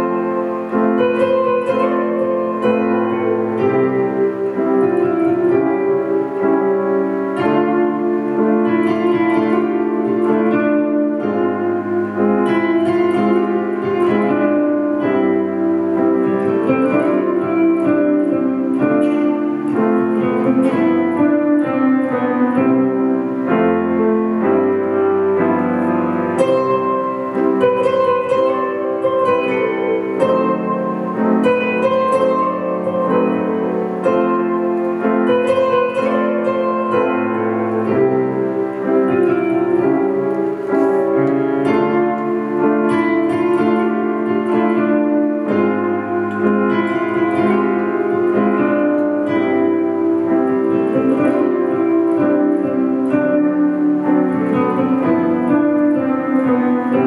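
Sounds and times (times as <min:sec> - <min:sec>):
acoustic guitar playing: 0:00.0 - 0:57.0
grand piano playing: 0:00.0 - 0:57.0.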